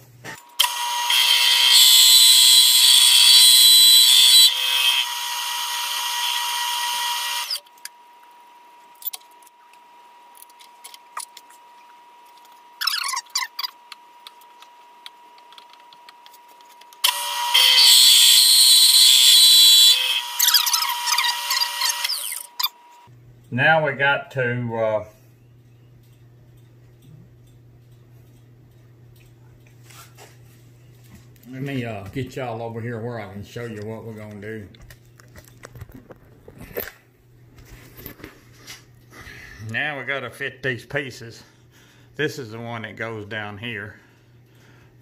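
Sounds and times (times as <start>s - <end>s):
milling machine cutting metal: 0.6s - 7.6s, 17.0s - 22.8s.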